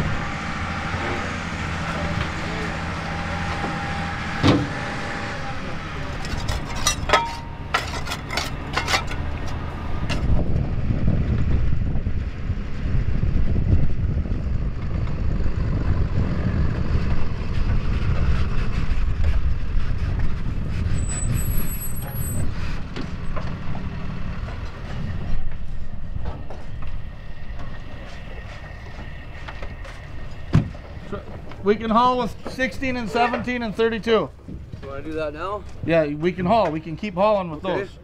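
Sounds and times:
truck engine rumble: 0.0s - 38.0s.

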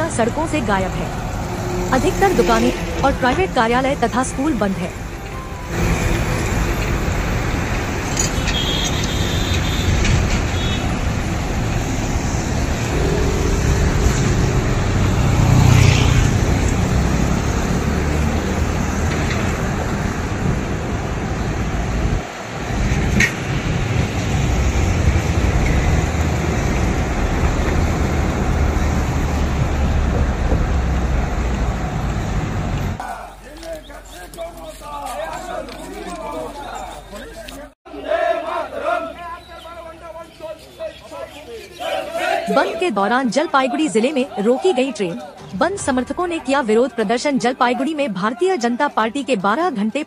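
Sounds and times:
road traffic rumble: 0.0s - 50.0s
vehicle passing close: 9.8s - 33.0s.

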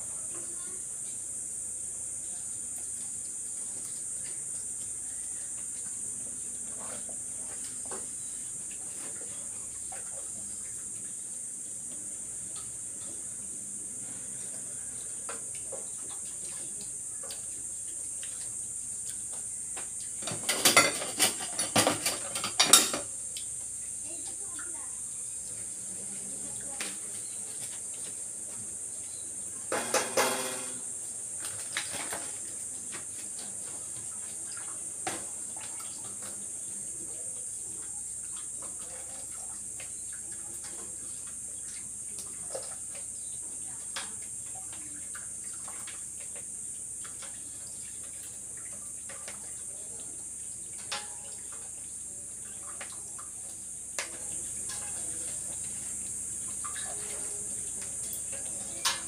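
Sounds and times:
steady high-pitched hiss: 0.0s - 59.0s
metal cookware clattering: 20.2s - 23.1s, 29.7s - 30.9s, 50.8s - 51.3s, 54.1s - 55.1s, 58.3s - 59.0s.

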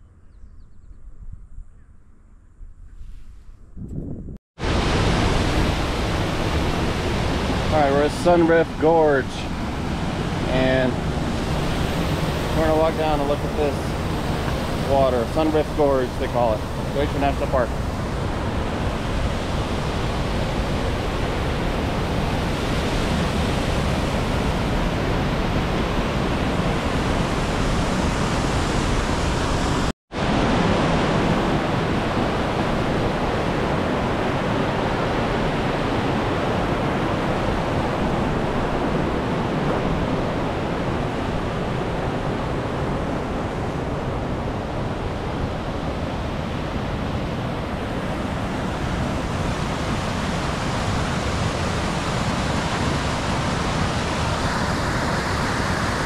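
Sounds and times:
creek rushing over rocks: 4.6s - 21.3s.

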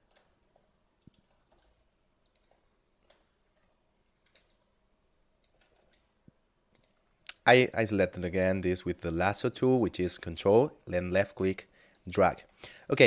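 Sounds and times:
mouse and keyboard clicks: 1.0s - 4.7s.

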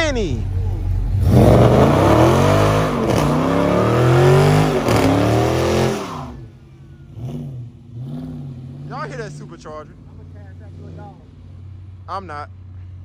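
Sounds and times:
car engine revving hard: 1.0s - 6.5s, 7.1s - 11.8s.

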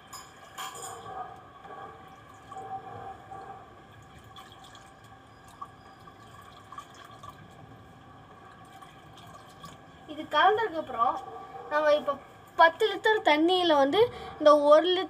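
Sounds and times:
small splashes and drips: 2.1s - 10.4s.

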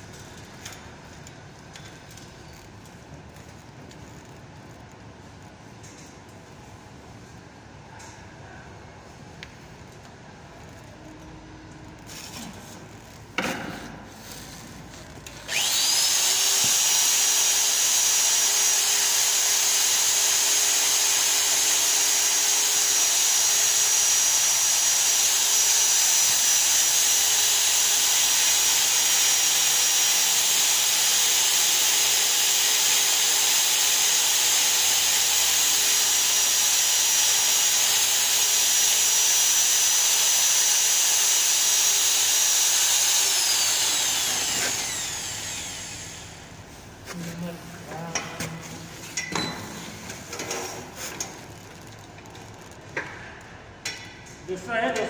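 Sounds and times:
electric drill whining: 15.2s - 46.6s
cutter boring into steel pipe: 15.3s - 46.5s.

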